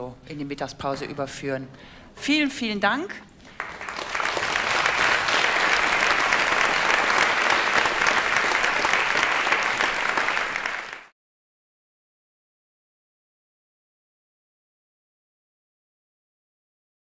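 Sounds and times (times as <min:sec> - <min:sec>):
audience applauding: 0:03.5 - 0:11.1.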